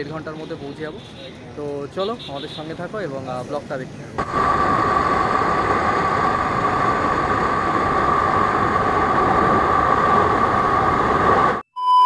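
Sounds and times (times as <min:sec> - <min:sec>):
constant high hum: 0:04.0 - 0:11.6
motorcycle engine drone: 0:04.2 - 0:11.6
wind on microphone: 0:04.2 - 0:11.6.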